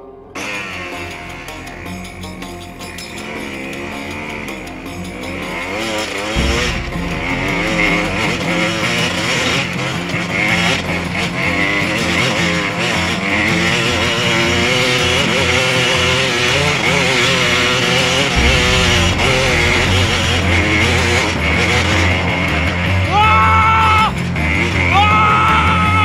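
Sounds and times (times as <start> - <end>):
dirt bike engine revving: 3.1 - 23.2.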